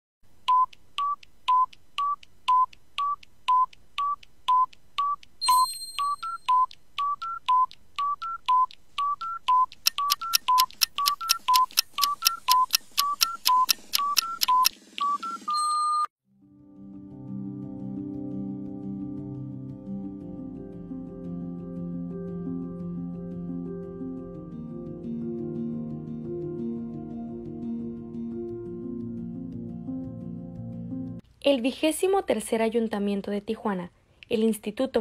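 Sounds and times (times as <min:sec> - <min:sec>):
electronic timer beeps: 0:00.5 - 0:16.1.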